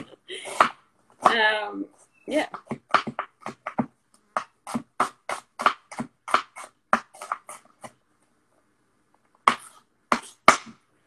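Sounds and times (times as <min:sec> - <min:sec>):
knife chopping on wooden board: 0:00.0 - 0:01.4, 0:02.4 - 0:08.0, 0:09.4 - 0:10.8.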